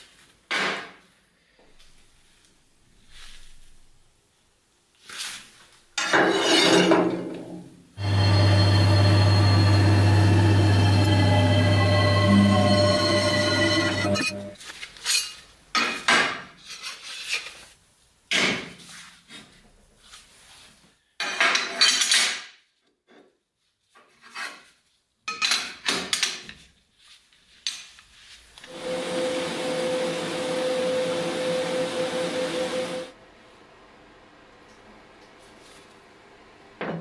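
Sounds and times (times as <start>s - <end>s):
welder humming: 8.0s - 14.6s, 28.7s - 33.2s.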